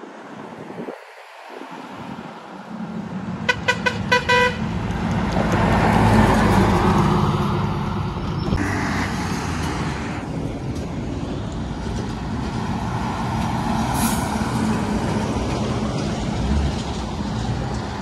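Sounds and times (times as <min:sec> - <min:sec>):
truck passing by: 0:00.2 - 0:18.0
another truck passing: 0:00.5 - 0:18.0
truck horn toots: 0:03.4 - 0:04.7.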